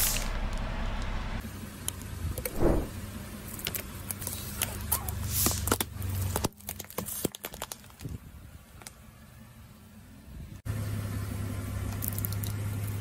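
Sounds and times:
loud thump: 2.5s - 3.0s
plastic cracking and snapping: 6.4s - 8.1s
car engine hum: 9.1s - 13.0s.

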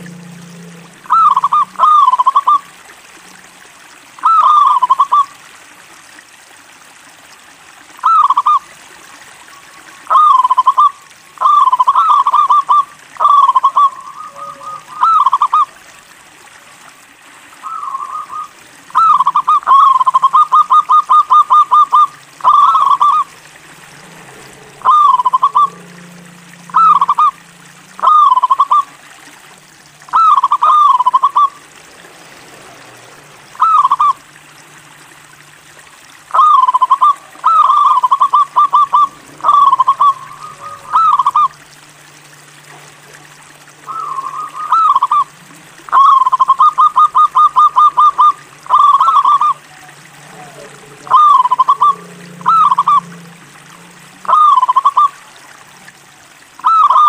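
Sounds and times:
dove cooing: 0.0s - 2.7s, 4.2s - 5.3s, 9.6s - 15.8s, 17.6s - 23.4s, 24.0s - 29.0s, 30.0s - 31.7s, 33.5s - 34.2s, 36.3s - 41.6s, 43.7s - 55.2s, 56.6s - 57.0s.

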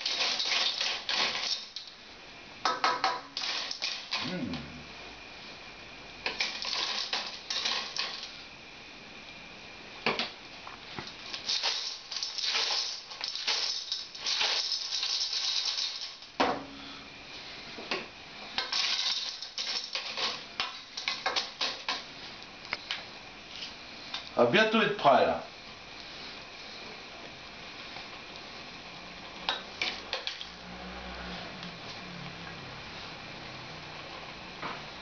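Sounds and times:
shells rattling against a steel pot: 0.0s - 1.9s, 3.4s - 4.2s, 6.3s - 8.3s, 11.4s - 16.4s, 18.6s - 22.0s.

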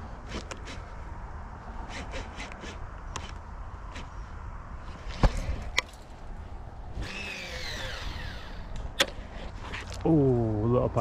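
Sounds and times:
reel spool whirring: 7.0s - 8.7s.

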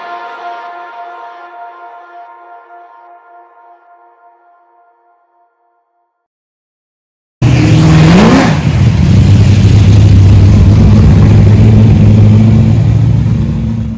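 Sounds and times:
car engine revving and running: 7.4s - 13.9s.

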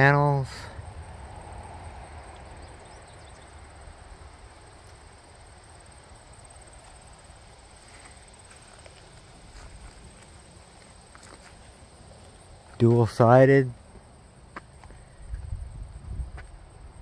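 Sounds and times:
high-pitched insect trill: 0.0s - 14.2s
wind rumble on microphone: 15.2s - 17.0s.

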